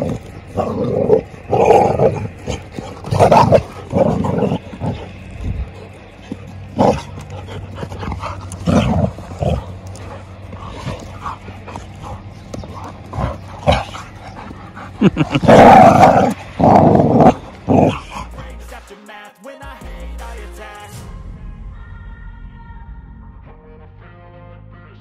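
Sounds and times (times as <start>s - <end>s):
dogs growling: 0.0s - 18.9s.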